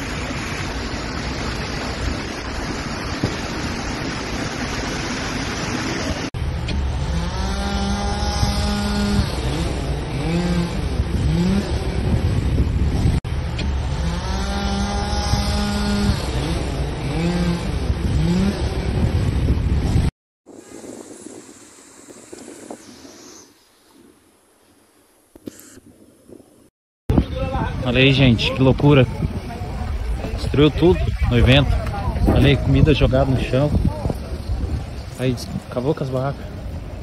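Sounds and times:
heavy rain on a street: 0.0 - 6.3
small engine revving: 6.7 - 20.1.

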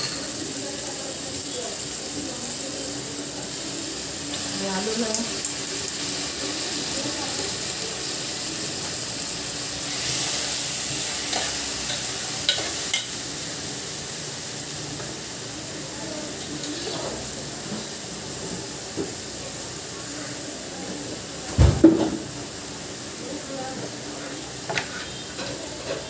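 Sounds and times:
food sizzling in a pan: 0.0 - 26.0
metal spoon clicking on pan: 11.3 - 13.2
loud thump: 21.6 - 22.2.

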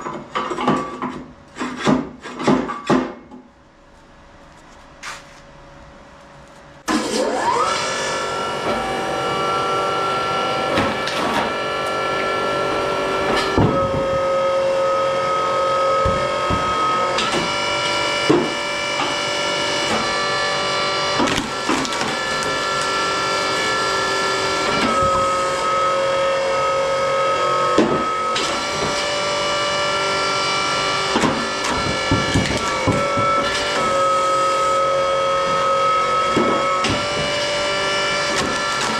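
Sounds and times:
hydraulic pump motor whining: 6.6 - 38.9
logs cracking as they split: 21.2 - 23.3, 38.2 - 38.9.

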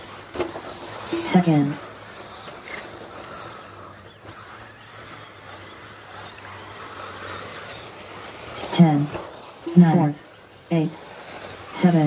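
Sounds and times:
toy car motor whines: 0.0 - 12.0
low steady hum: 0.9 - 2.0.

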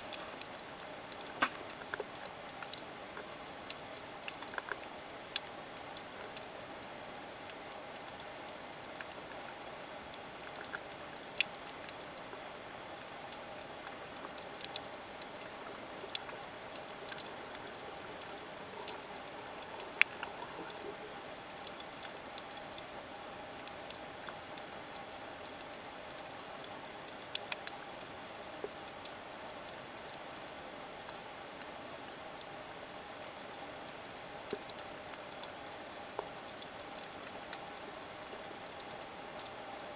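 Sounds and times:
sharp clicks and crackles: 0.0 - 23.0.

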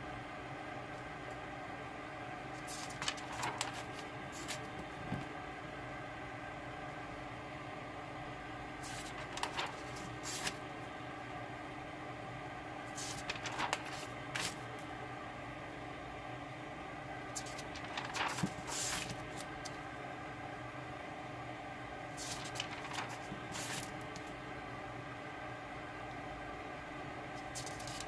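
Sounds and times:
background hum: 0.0 - 28.0
notebook paper rustling: 2.6 - 4.8, 8.8 - 10.6, 12.9 - 14.7, 17.3 - 19.8, 22.1 - 24.3, 27.4 - 28.0.

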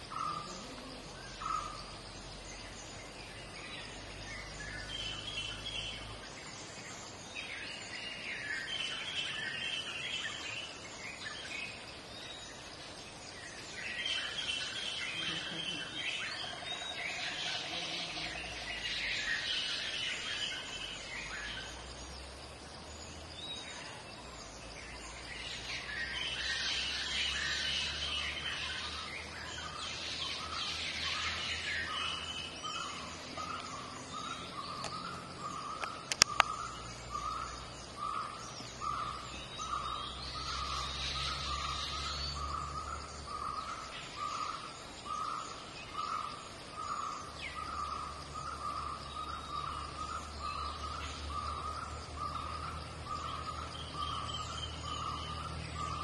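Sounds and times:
birds twittering: 0.0 - 56.0
sharp clicks: 35.8 - 36.6.

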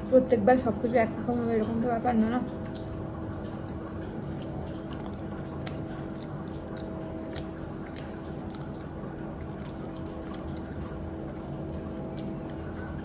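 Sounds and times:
steady low hum: 0.0 - 13.0
person chewing food: 2.6 - 13.0.

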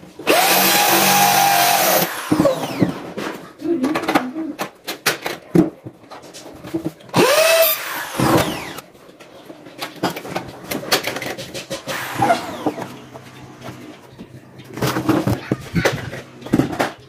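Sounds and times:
power tool whining: 0.2 - 3.0, 7.2 - 8.8, 11.9 - 14.0.

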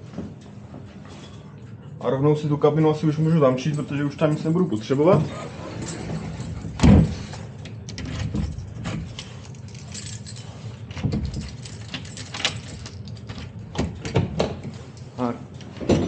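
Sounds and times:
steady low hum: 0.0 - 16.0
keys jangling and clicking: 3.6 - 14.2.

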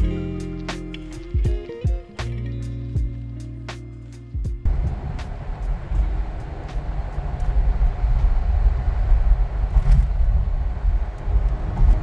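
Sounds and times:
road and wind noise inside car: 4.6 - 12.0.

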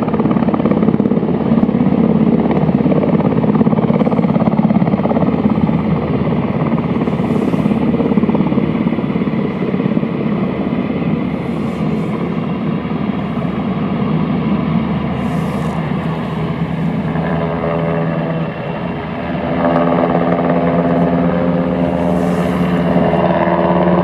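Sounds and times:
helicopter rotor chop: 0.0 - 24.0
turbine drone: 0.0 - 24.0.

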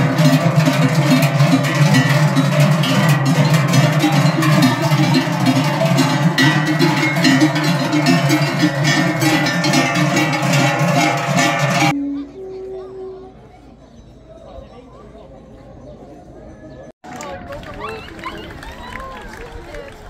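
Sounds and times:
large cowbells clanging: 0.0 - 12.0.

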